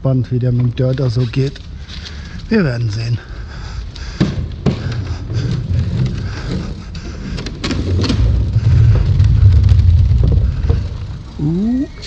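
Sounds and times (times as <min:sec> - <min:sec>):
bike rumbling over dirt track: 0:04.6 - 0:12.0.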